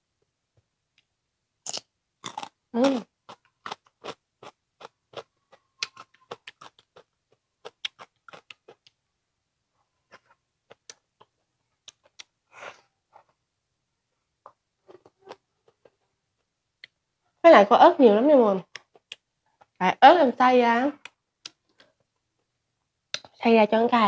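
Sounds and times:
cucumber crunching: 1.6s - 9.0s, 10.1s - 12.4s.

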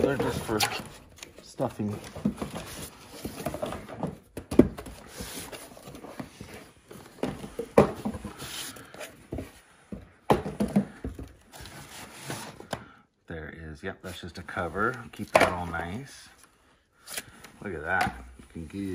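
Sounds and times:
cardboard scraping and rustling: 0.0s - 9.5s.

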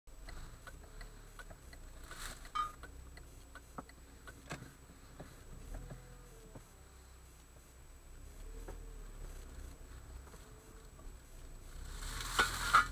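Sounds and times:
car engine and road rumble: 0.1s - 12.9s
light ticks and taps: 0.2s - 6.7s.

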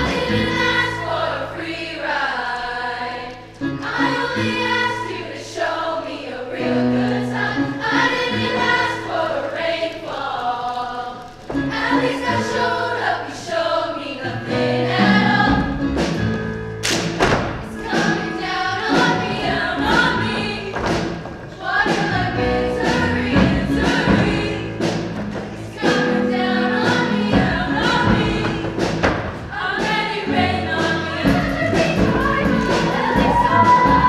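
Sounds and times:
female choir singing in harmony: 0.0s - 15.9s, 17.6s - 34.0s
pop accompaniment with thudding beat: 15.0s - 34.0s.

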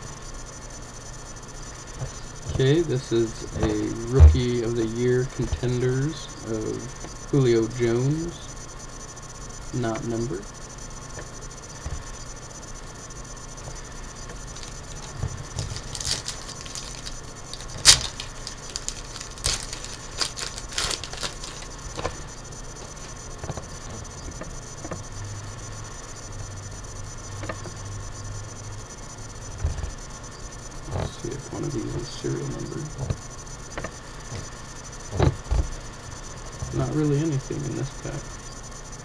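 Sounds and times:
cards rustling and clicking: 14.5s - 23.2s
foil wrapper crinkling and tearing: 14.6s - 23.2s.

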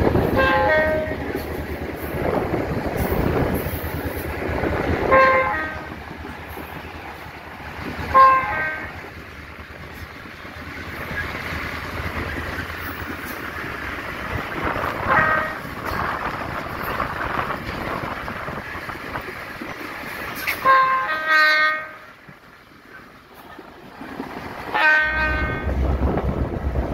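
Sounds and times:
diesel locomotive running: 0.0s - 26.9s
locomotive horn blasts: 0.3s - 1.2s, 5.0s - 6.0s, 8.1s - 9.0s, 15.1s - 15.7s, 20.6s - 22.1s, 24.7s - 25.8s.

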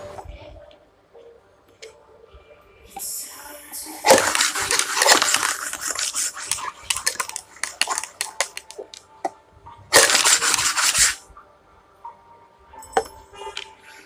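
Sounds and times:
dice rattling in plastic cup: 4.1s - 9.0s, 10.0s - 11.2s
dice clicking on tabletop: 4.1s - 9.1s.

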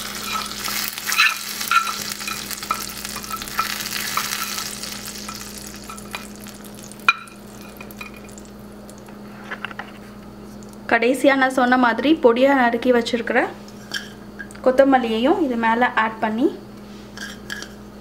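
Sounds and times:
hot oil sizzling and crackling: 0.0s - 9.2s.

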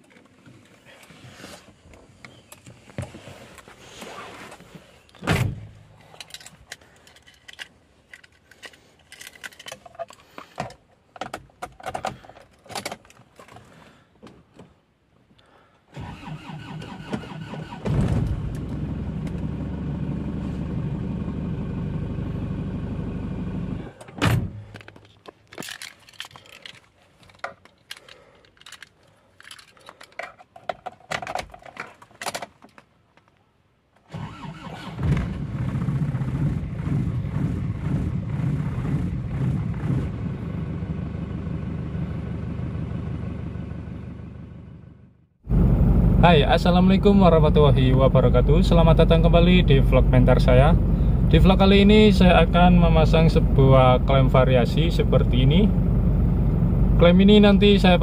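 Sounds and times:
clicks and knocks of handling: 6.0s - 14.8s, 24.0s - 33.4s
diesel engine cranking: 15.9s - 24.1s, 34.1s - 43.3s, 45.5s - 58.0s.

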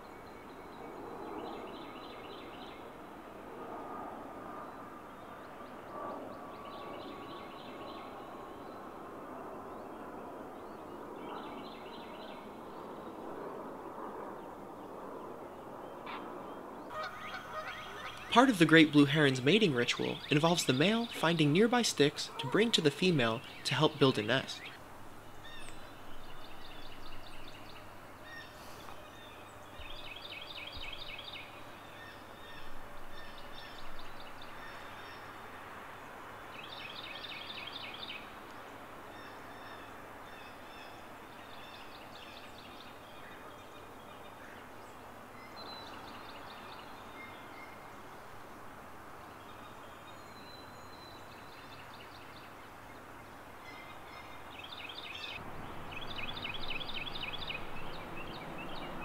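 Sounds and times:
background hiss: 16.9s - 59.0s.

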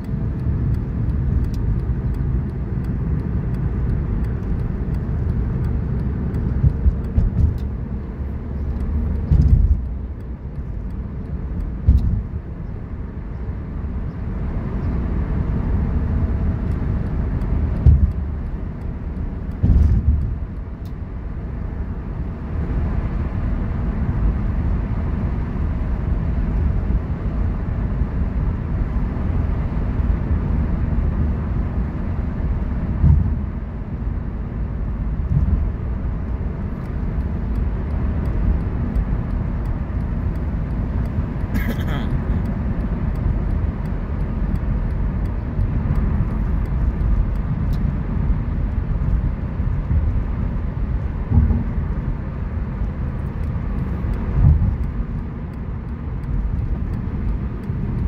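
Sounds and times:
car cabin road rumble: 0.0s - 58.0s
short thumps: 6.5s - 7.6s, 33.0s - 33.4s.

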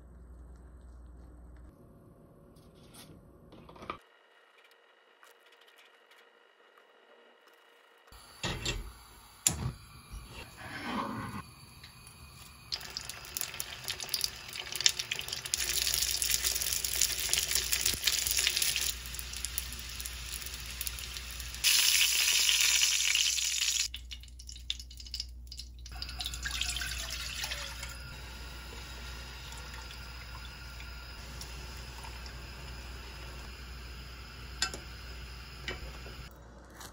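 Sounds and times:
hot oil sizzling and crackling: 11.4s - 36.3s.

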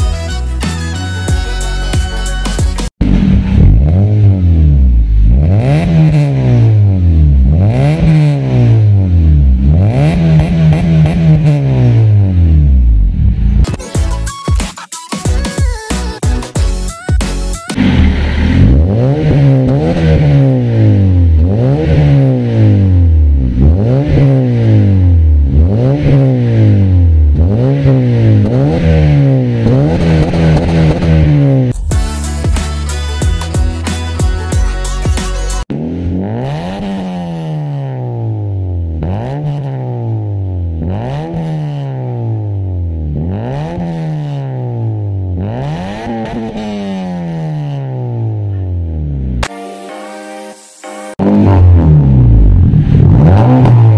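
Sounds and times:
car engine revving: 3.0s - 13.7s, 17.8s - 33.1s, 35.6s - 49.5s, 51.1s - 53.9s.

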